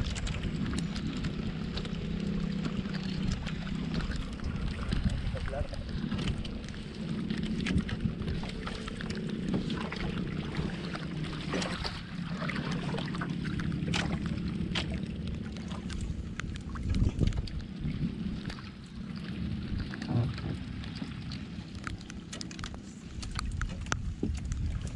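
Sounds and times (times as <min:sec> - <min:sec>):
boat engine idling: 0:00.0 - 0:24.9
water washing against hull: 0:00.0 - 0:24.9
wind: 0:00.0 - 0:24.9
fishing line clicks and knocks: 0:21.7 - 0:24.7.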